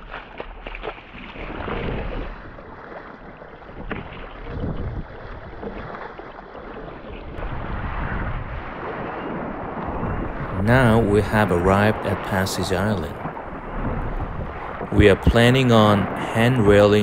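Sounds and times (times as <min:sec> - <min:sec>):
kayak paddle splashing water: 0:00.0 - 0:07.4, 0:08.6 - 0:17.0
wind on microphone: 0:00.8 - 0:02.7, 0:03.6 - 0:17.0.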